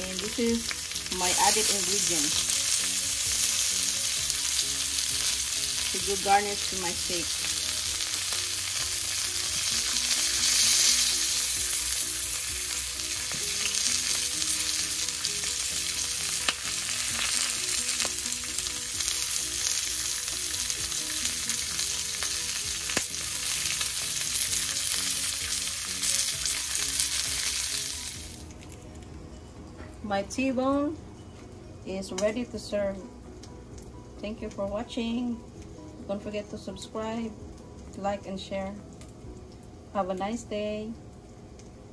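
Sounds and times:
food sizzling in pan: 0.0 - 28.8.

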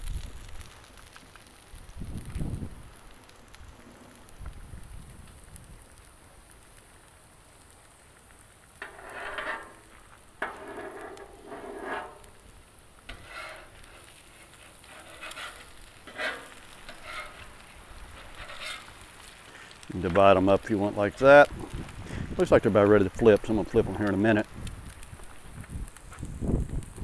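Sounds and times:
eggs sizzling faintly: 0.0 - 27.0
metal spatula scraping griddle: 8.8 - 12.4, 13.0 - 21.3.

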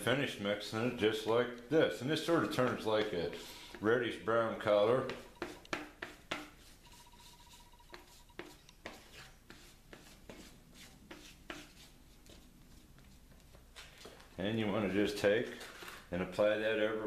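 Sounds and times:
spreader scraping filler on cardboard: 5.1 - 13.2.

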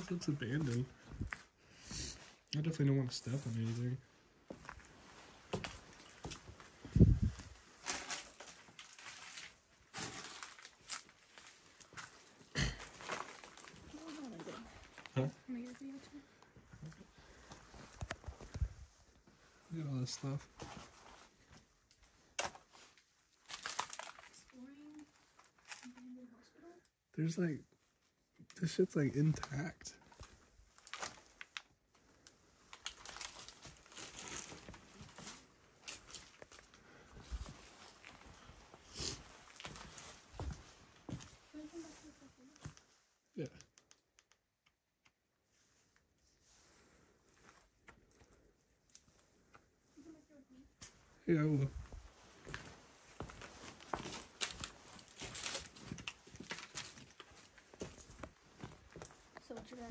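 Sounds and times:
footsteps crunching on littered floor: 0.5 - 1.6, 3.1 - 16.0, 33.0 - 42.0, 51.7 - 59.9
debris crackling and crinkling: 2.6 - 16.1, 20.0 - 26.3, 29.2 - 40.4, 51.6 - 59.9
small clicks: 43.5 - 45.2.

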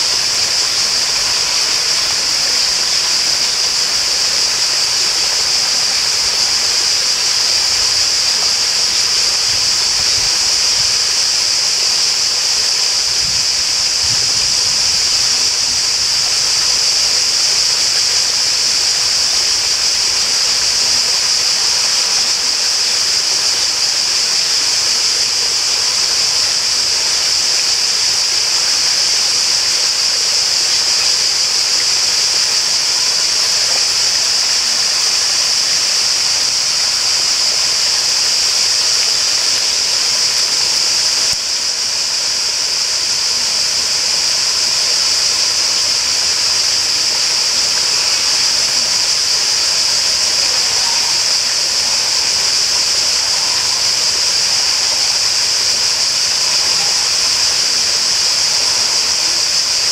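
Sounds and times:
high-pitched hiss: 0.0 - 59.9
running water: 0.0 - 59.9.

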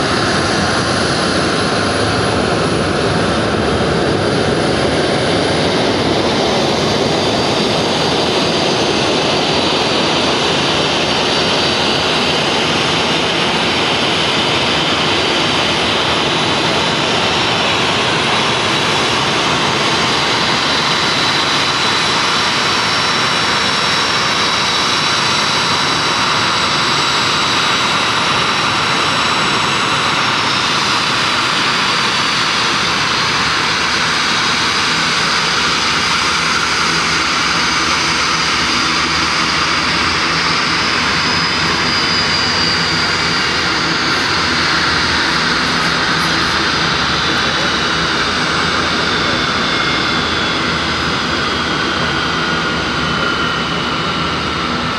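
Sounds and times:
jet engine roar with whine: 0.0 - 54.9.

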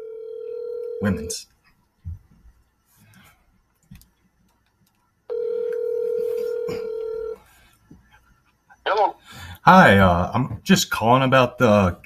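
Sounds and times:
phone ringback tone: 0.0 - 1.2, 5.3 - 7.4.

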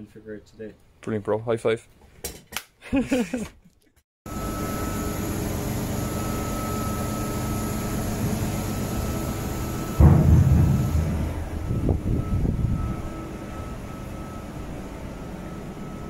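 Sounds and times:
ship deck machinery humming: 4.3 - 16.0.

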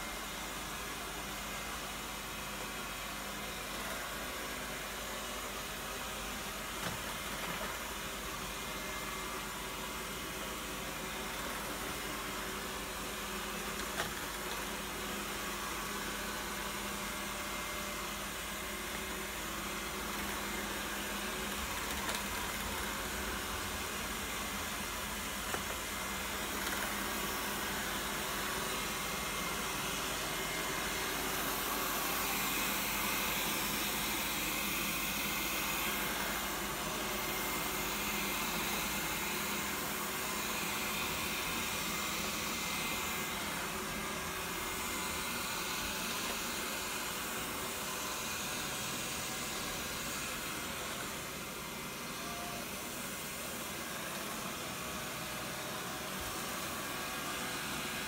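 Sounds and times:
robot vacuum whirring: 13.6 - 58.0.

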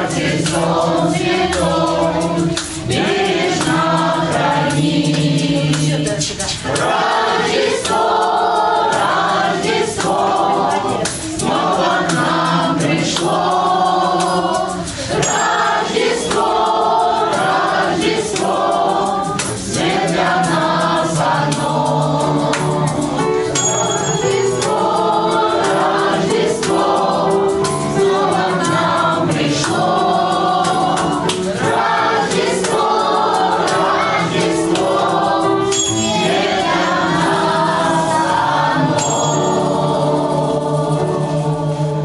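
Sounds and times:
choir singing: 0.0 - 42.0.

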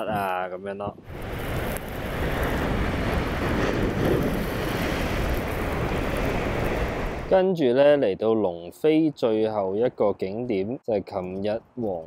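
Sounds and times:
wind buffeting microphone: 0.0 - 7.4.

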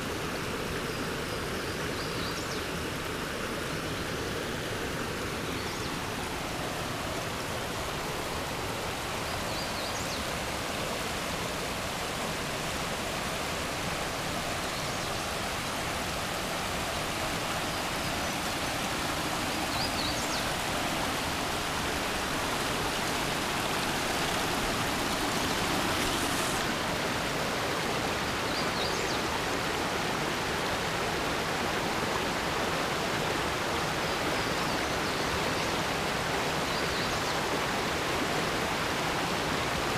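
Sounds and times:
creek rushing over rocks: 0.0 - 39.9.

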